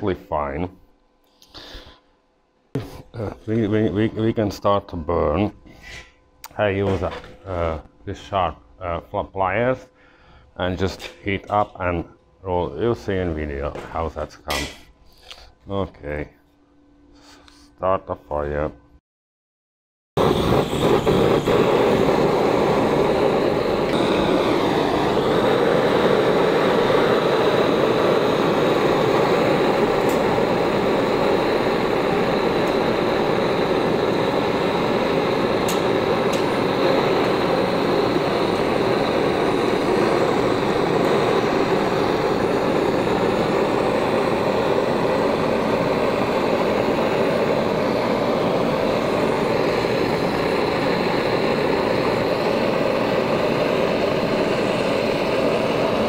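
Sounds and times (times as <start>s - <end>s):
gas torch burning: 20.2s - 56.0s.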